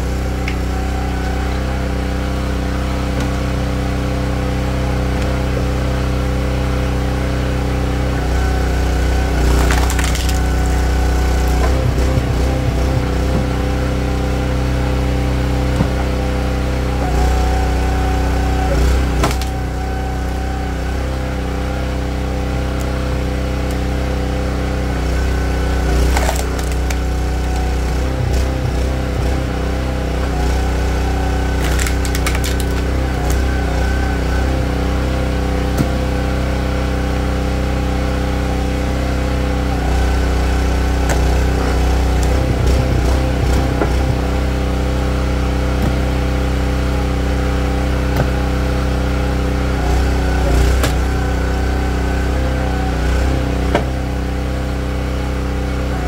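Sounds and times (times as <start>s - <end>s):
small gas engine running: 0.0s - 56.0s
wood splitting cracks: 9.4s - 12.2s, 19.2s - 19.6s, 25.9s - 27.8s, 31.4s - 33.5s, 50.5s - 51.1s.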